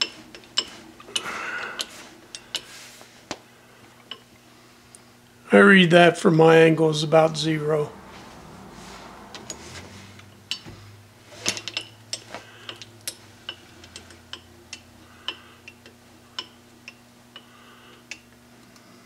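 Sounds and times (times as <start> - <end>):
steady low hum: 0.0 - 19.0
lathe carriage moving: 6.8 - 14.5.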